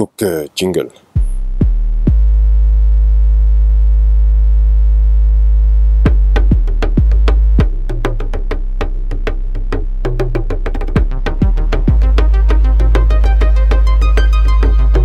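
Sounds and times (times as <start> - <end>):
drum hits: 1.1 - 2.3, 6.1 - 15.0
deep synthesizer note: 1.2 - 8.0, 8.6 - 15.0.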